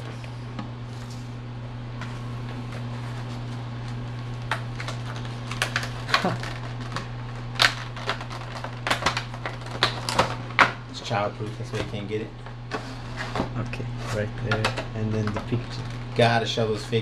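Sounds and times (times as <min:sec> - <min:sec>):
steady low hum: 0:00.0 - 0:17.0
packaging clicks and scrapes: 0:04.8 - 0:10.4.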